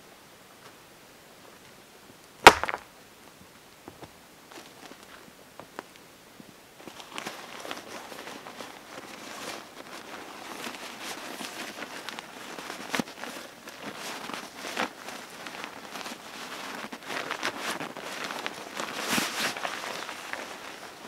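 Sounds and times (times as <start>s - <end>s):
sharp crackles: 2.4s - 2.8s
fabric stuff sack rustling: 6.8s - 21.0s.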